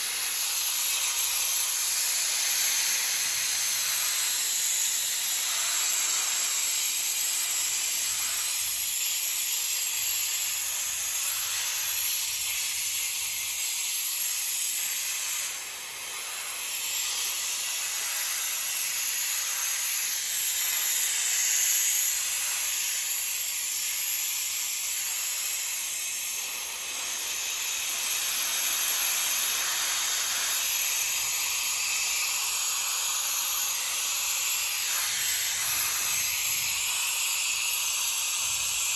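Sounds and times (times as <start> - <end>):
compressed air hissing: 0.0 - 38.9.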